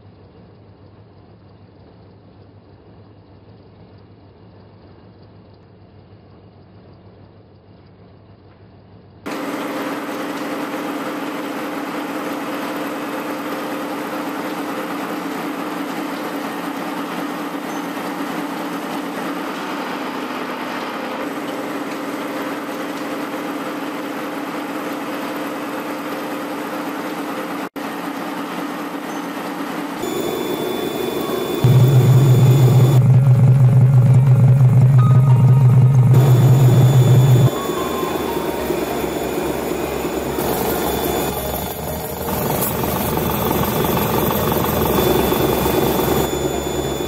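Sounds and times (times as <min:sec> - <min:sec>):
low machine hum: 0:30.0 - 0:47.0
milling cutter machining steel: 0:30.0 - 0:47.0.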